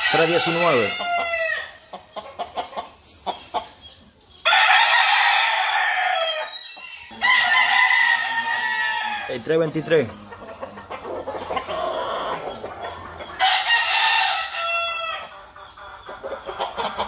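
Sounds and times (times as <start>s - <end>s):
rooster crowing: 0.0s - 1.7s, 4.4s - 9.3s, 13.4s - 15.3s
chicken clucks and clicks: 0.5s - 4.7s, 9.3s - 17.0s.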